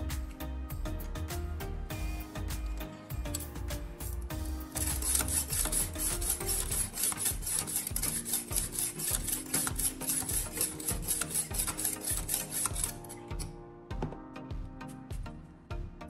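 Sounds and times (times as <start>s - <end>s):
sharpening stone scraping knife blade: 4.5s - 13.5s.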